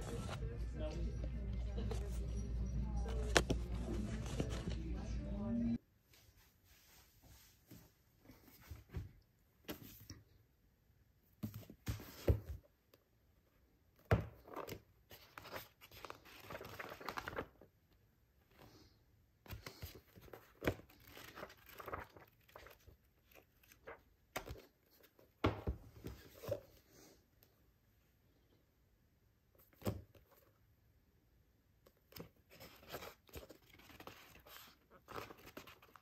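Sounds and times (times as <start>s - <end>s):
pages flipping and riffling: 3.0s - 5.1s, 14.4s - 17.6s, 19.5s - 25.2s, 32.1s - 36.0s
books knocking on a desk: 25.4s - 26.0s.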